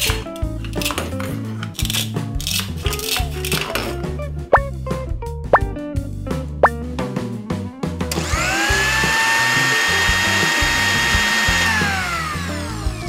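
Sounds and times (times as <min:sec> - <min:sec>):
toy blender motor whine: 0:08.2 - 0:13.0.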